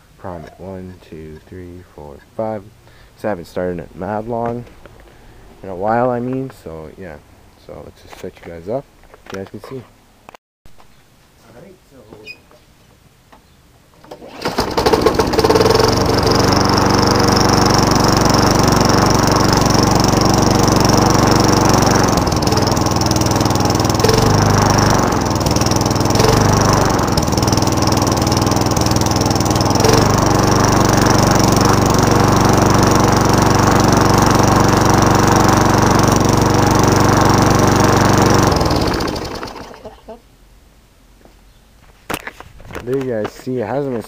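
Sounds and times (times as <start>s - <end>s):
lawn mower engine starting and running: 14.0s - 40.1s.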